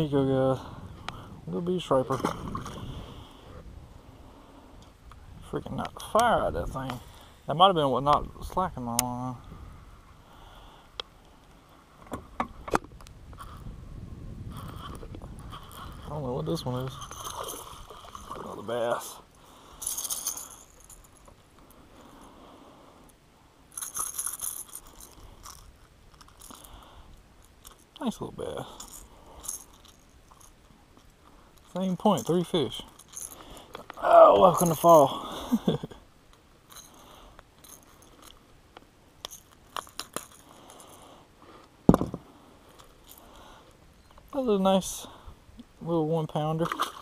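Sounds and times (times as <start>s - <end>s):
fishing hooks jangling: 16.8s - 18.5s, 19.8s - 21.3s, 23.7s - 26.8s, 28.5s - 30.6s, 31.6s - 34.0s, 39.2s - 41.0s.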